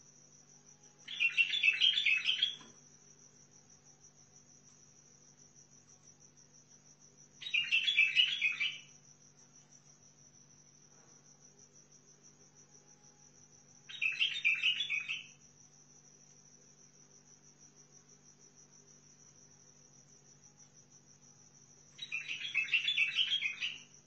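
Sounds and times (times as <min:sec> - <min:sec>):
high pulsing insect trill: 0:00.0 - 0:24.0
bird singing warbled phrases: 0:01.0 - 0:02.7, 0:07.4 - 0:08.9, 0:13.9 - 0:15.4, 0:22.0 - 0:23.9.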